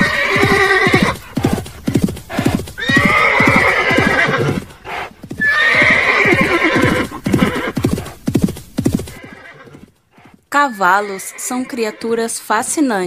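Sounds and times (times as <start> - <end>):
horse neighing: 0.0 - 1.7, 2.3 - 8.1, 9.0 - 9.9, 10.6 - 12.2
hoofbeats: 0.0 - 12.6.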